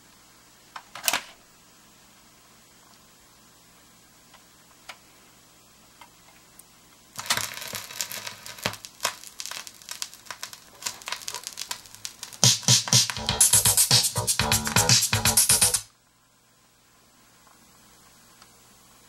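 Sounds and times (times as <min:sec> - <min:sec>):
record crackle and pops: 0:05.9 - 0:16.0
stylus dropping into groove: 0:10.4 - 0:15.8
music with strong beat: 0:12.3 - 0:15.9.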